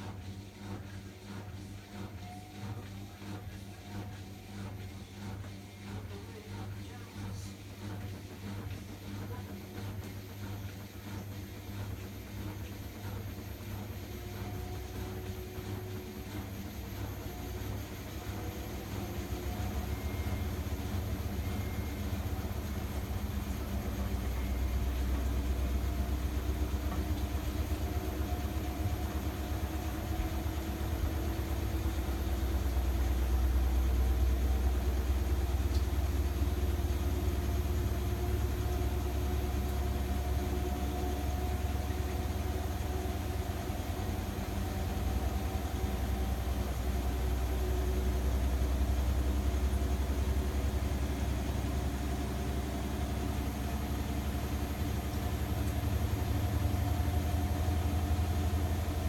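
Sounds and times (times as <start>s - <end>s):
washing machine spinning: 0.0s - 59.0s.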